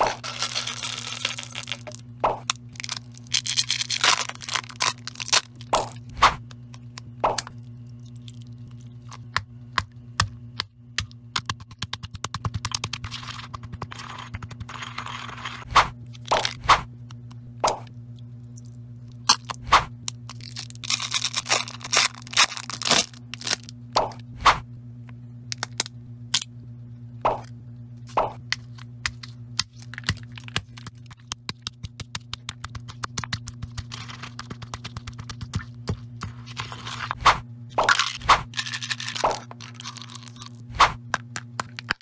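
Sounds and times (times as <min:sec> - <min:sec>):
candy wrappers crinkling: 0:00.0 - 0:06.1, 0:20.1 - 0:23.7, 0:29.1 - 0:37.2, 0:37.9 - 0:40.6
pestle grinding candy in mortar: 0:00.0 - 0:06.3, 0:09.0 - 0:16.7, 0:29.1 - 0:42.0
low hum: 0:00.0 - 0:42.0.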